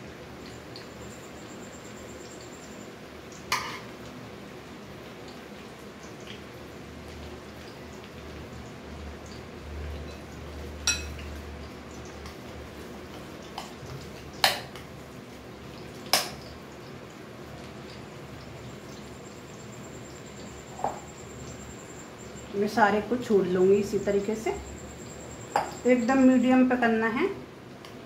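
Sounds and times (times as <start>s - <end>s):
oil sizzling deep frying: 0.0s - 28.0s
kitchen utensils clinking: 10.9s - 11.2s.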